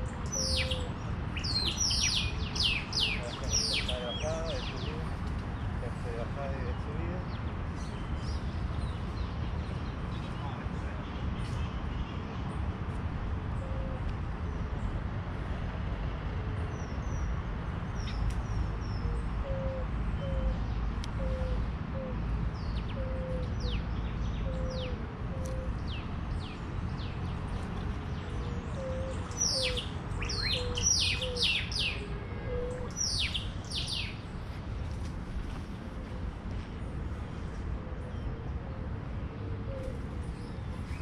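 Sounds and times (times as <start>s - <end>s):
birds chirping: 0.0s - 12.6s, 17.9s - 36.1s.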